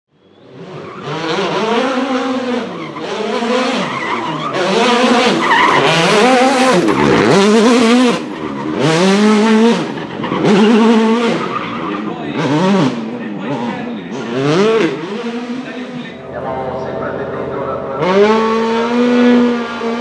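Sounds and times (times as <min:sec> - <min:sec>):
rally car engine revving: 0:00.3 - 0:20.0
tyres skidding: 0:00.4 - 0:20.0.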